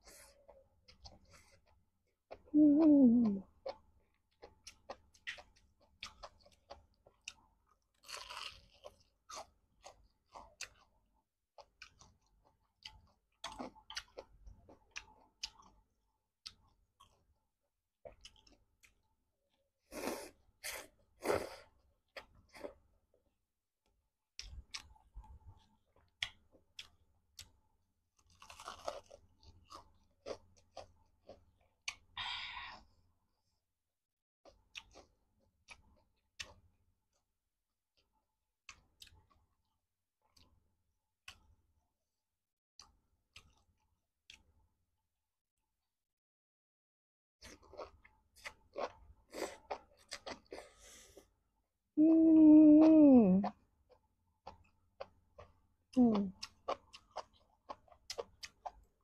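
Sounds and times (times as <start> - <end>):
chewing noodles: 3.4 - 17.3, 18.0 - 19.1, 24.4 - 32.2, 34.4 - 36.7, 42.8 - 44.5, 47.4 - 51.3, 56.2 - 59.0.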